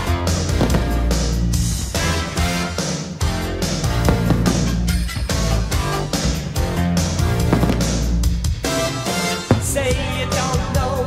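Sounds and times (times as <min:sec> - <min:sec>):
rock music with loud guitar: 0:00.0 - 0:11.0.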